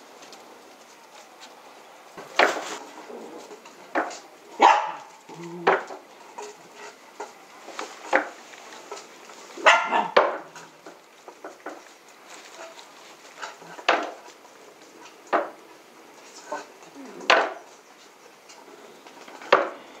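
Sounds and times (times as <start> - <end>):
dogs barking: 4.5 - 5.8, 9.6 - 10.8.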